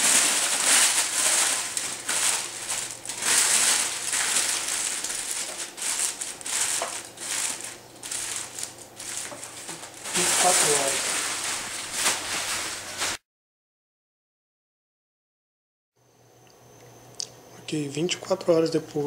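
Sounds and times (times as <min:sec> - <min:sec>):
aluminium foil crinkling: 0:00.0 - 0:13.2.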